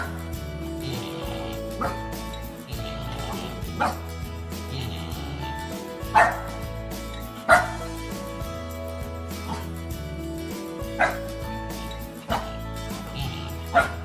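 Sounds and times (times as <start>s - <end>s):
background music: 0.0s - 14.0s
dog yipping: 1.8s - 2.0s, 2.8s - 4.0s, 6.1s - 6.5s, 7.5s - 7.9s, 10.9s - 11.3s, 12.2s - 14.0s.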